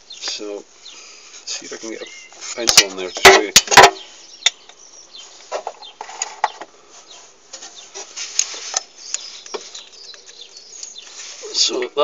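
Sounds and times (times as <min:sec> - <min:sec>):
handling rustle: 0:05.2 - 0:11.8.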